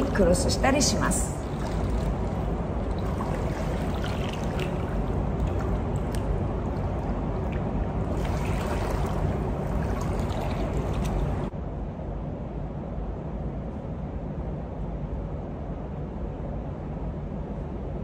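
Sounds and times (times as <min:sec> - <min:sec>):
water sloshing and lapping: 0:00.0 - 0:11.5
small splashes: 0:01.3 - 0:11.5.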